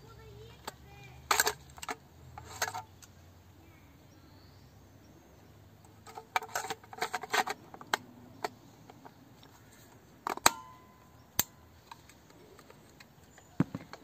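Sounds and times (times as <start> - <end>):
film magazine metal clicks: 0.6 - 3.1, 10.2 - 14.0.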